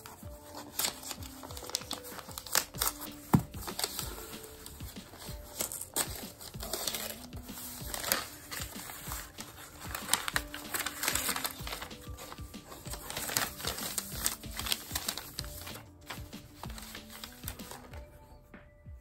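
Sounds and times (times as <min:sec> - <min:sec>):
gift wrapping paper crinkling: 0:00.0 - 0:18.0
quiet background music: 0:00.0 - 0:19.0.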